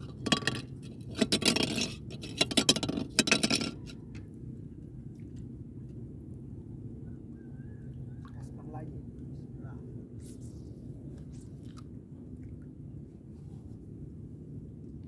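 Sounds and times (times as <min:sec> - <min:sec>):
scraping clatter: 0:00.0 - 0:04.2
low background hum: 0:00.0 - 0:15.0.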